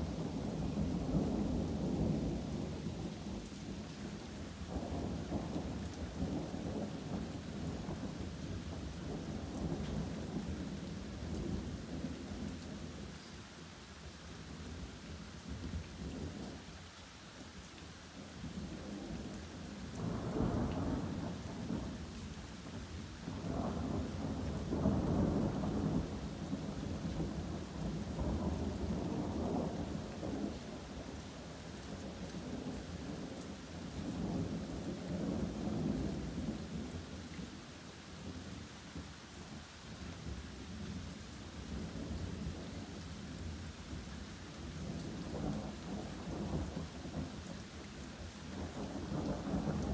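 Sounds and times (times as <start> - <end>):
steady rain: 0.0 - 49.9
thunder rumbling: 48.6 - 49.9.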